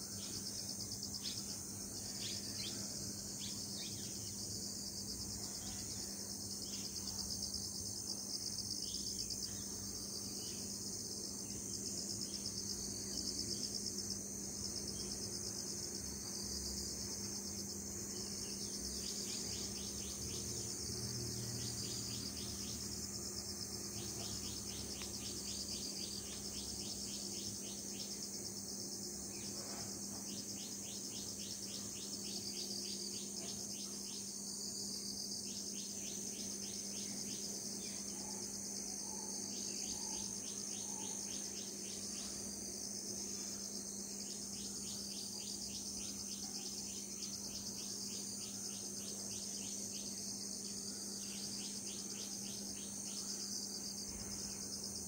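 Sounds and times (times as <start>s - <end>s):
insects trilling: 0.0s - 55.0s.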